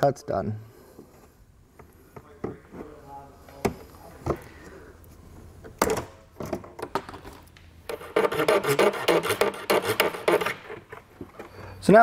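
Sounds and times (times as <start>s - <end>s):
file rasping on plastic: 7.9s - 10.9s.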